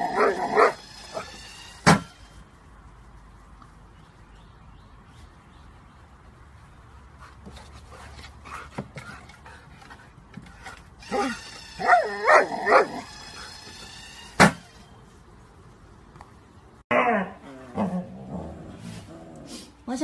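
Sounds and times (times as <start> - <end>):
dog whining and yipping: 11.0 - 14.4.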